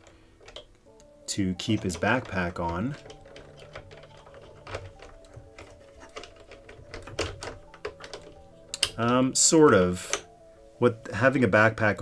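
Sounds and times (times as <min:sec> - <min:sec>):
plastic toy clicks and taps: 0:00.0 - 0:09.2.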